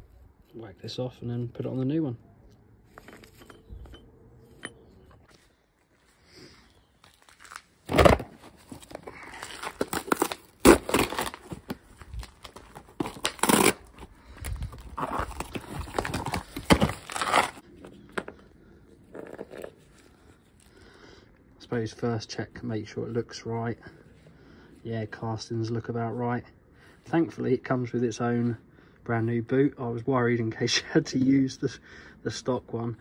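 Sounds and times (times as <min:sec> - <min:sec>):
packaging crinkling: 0:07.1 - 0:08.0, 0:08.7 - 0:17.6
cardboard tearing: 0:07.3 - 0:14.1, 0:14.7 - 0:17.6.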